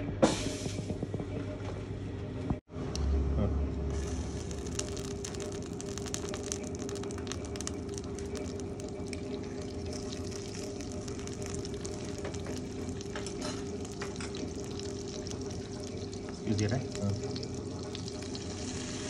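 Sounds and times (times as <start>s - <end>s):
steady low hum: 0.0s - 19.0s
butter sizzling in a pan: 3.9s - 19.0s
small pops and crackles: 4.0s - 18.4s.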